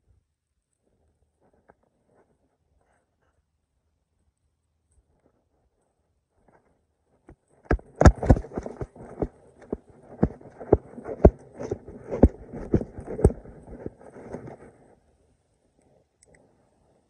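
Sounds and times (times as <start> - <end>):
footsteps on dirt: 7.7 - 14.6
phone rustling and knocking: 7.7 - 14.7.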